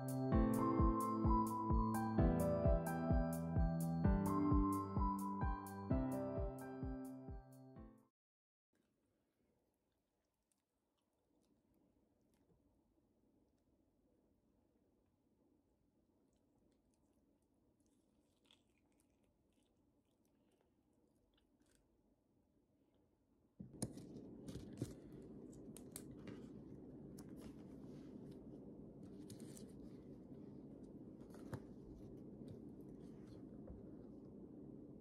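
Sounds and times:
low room hum: 10.4s - 35.0s
paper rustling: 23.6s - 30.2s.

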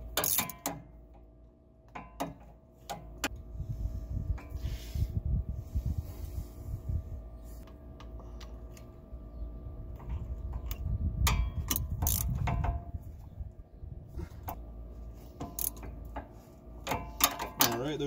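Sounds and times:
ratchet clicking: 0.2s - 0.8s, 11.3s - 12.6s, 15.4s - 15.9s.

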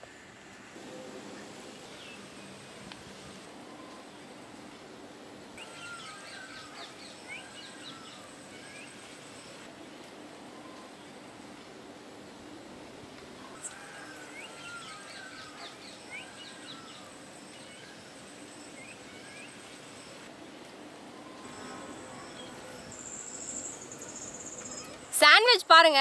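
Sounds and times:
high insect whine: 13.5s - 20.3s, 21.0s - 25.2s.

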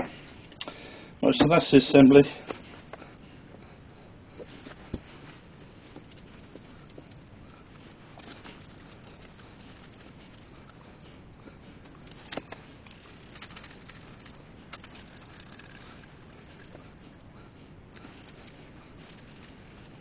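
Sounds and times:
hands rubbing glue on wood: 4.4s - 20.0s.

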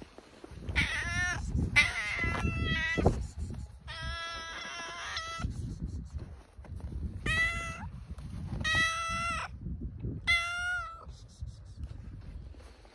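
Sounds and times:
cat meowing: 0.7s - 3.0s, 3.8s - 5.5s, 7.2s - 7.9s, 8.6s - 9.5s, 10.2s - 11.1s.

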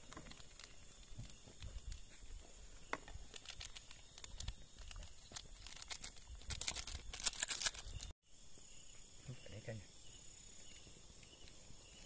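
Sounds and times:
wood fire crackling and popping: 0.0s - 8.1s
faint insect drone: 0.0s - 12.0s.

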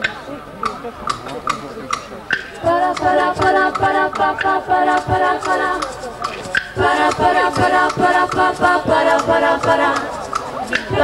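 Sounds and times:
low steady beat: 1.5s - 11.0s
girls singing in harmony: 2.6s - 11.0s.

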